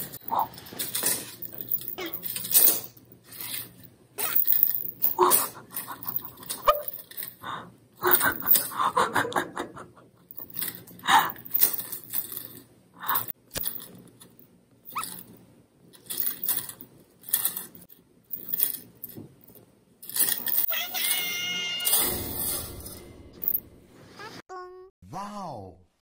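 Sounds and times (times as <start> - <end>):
stifled human laughter: 5.2 - 6.7, 8.0 - 10.3.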